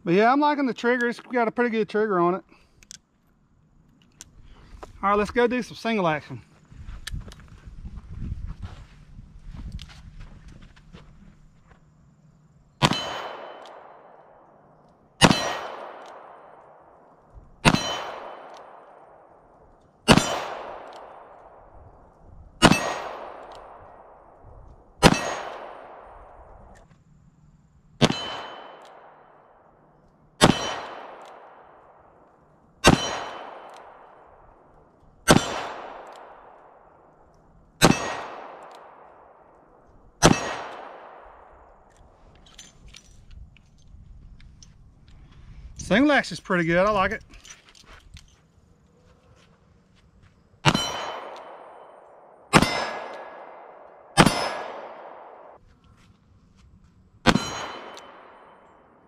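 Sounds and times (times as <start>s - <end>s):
revolver gunshots echoing: 12.8s - 21.8s, 22.6s - 24.4s, 25.0s - 26.5s, 28.0s - 29.7s, 30.4s - 32.2s, 32.8s - 37.2s, 37.8s - 41.8s, 50.6s - 55.6s, 57.3s - 59.0s.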